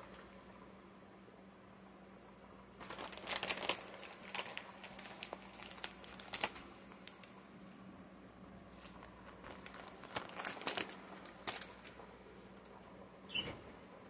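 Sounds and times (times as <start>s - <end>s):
faint steady hum: 0.0s - 14.0s
plastic bag crinkling: 2.8s - 7.3s, 8.7s - 12.8s.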